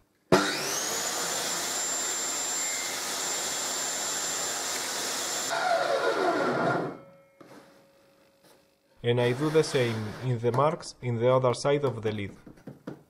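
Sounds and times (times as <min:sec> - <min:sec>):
table saw motor whining: 0:00.3 - 0:07.0.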